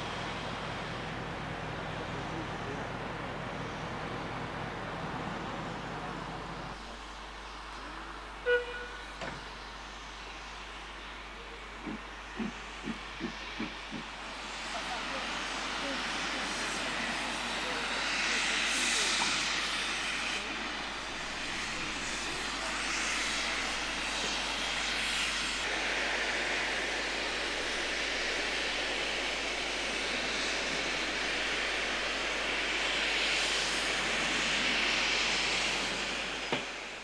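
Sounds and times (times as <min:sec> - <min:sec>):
steam locomotive venting steam: 0:00.0 - 0:37.0.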